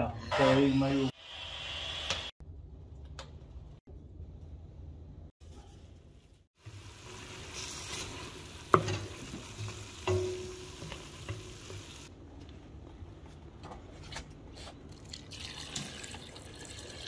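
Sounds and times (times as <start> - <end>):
onions sizzling in a pot: 6.5 - 12.1.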